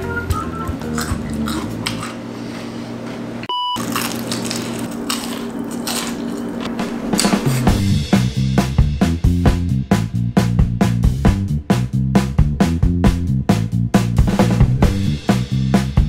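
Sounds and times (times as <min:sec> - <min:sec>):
person chewing and smacking: 0:00.7 - 0:02.7, 0:03.8 - 0:07.8
short electronic beep: 0:03.5 - 0:03.8.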